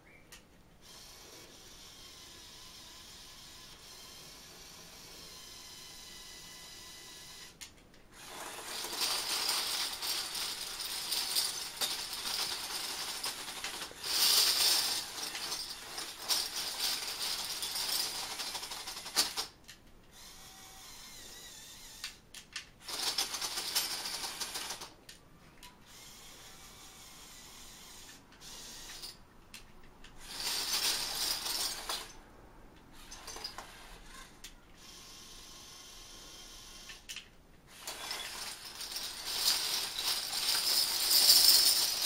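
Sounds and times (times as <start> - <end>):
metal bottle caps clattering: 37.9 - 42.0.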